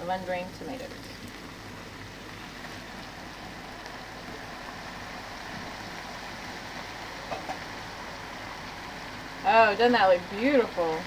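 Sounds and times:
food sizzling in a skillet: 0.0s - 11.0s.

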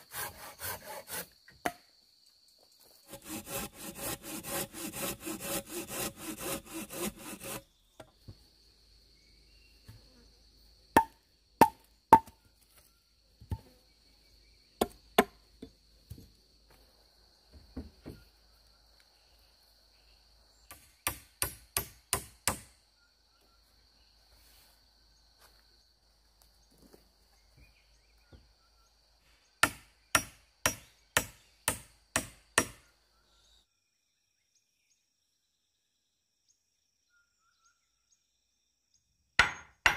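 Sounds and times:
hand saw cutting log: 0.0s - 1.3s, 3.1s - 7.6s
sharp wooden knocks: 39.4s - 39.9s.

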